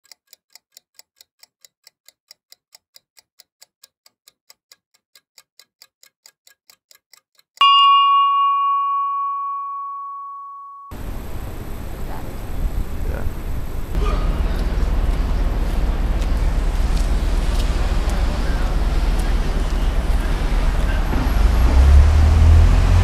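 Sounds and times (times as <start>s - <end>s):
clock ticking: 0.0s - 8.2s
bell ding: 7.6s - 11.0s.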